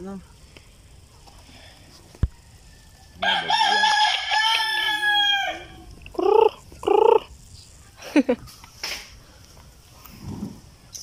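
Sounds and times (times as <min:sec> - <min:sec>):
rooster crowing: 0:02.2 - 0:07.2
chickens calling: 0:03.0 - 0:07.4.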